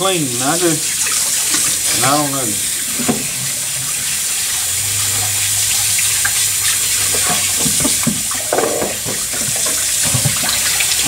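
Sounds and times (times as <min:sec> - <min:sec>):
tap water running into sink: 0:00.0 - 0:11.0
small splashes and knocks: 0:06.2 - 0:11.0.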